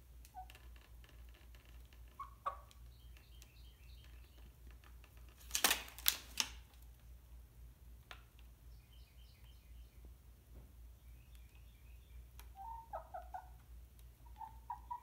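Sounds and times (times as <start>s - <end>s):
chicken clucking: 1.8s - 4.6s, 12.3s - 15.0s
faint high chirping: 8.7s - 10.1s.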